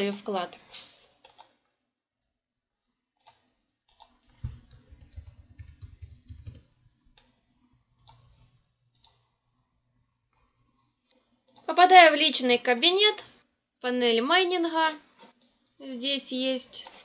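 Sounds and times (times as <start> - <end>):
computer mouse clicks: 1.2 - 1.7, 3.2 - 9.3, 11.0 - 11.7, 15.2 - 15.8, 16.8 - 17.0
rapid keyboard typing: 3.2 - 7.3, 7.9 - 9.2.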